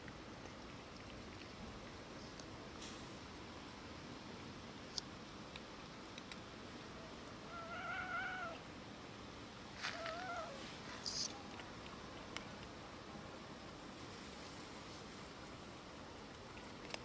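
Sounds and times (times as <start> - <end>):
cat meowing: 7.5 - 8.6, 9.9 - 10.6.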